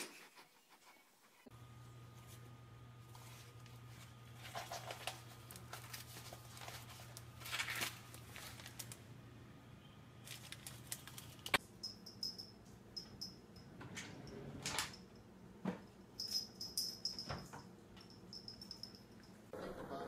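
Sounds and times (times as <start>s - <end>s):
electric fan hum: 1.5s - 20.0s
paper rustling and crinkling: 3.1s - 9.0s, 10.2s - 11.6s.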